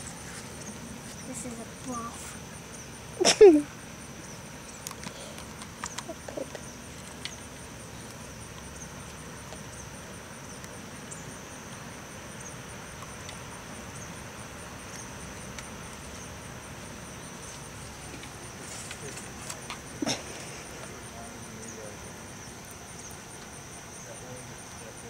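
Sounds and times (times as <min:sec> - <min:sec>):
insects buzzing and trilling: 0:00.0 - 0:25.0
low outdoor background hum: 0:00.0 - 0:25.0.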